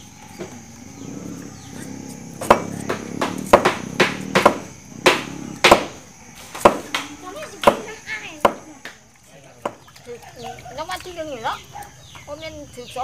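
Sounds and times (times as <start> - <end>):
knife chopping on wooden board: 2.4 - 6.0, 6.6 - 8.6.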